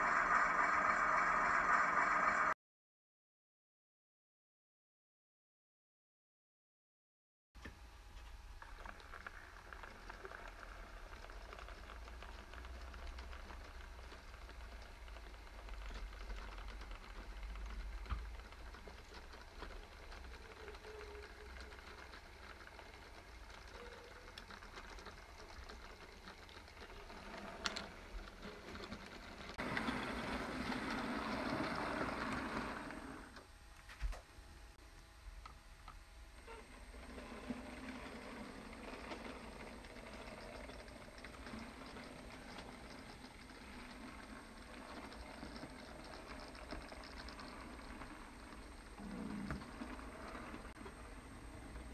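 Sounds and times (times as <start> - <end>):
model train motor whir: 0.0 - 2.6, 8.8 - 33.5, 36.4 - 51.9
wheels clicking over rails: 8.7 - 33.5, 36.4 - 51.9.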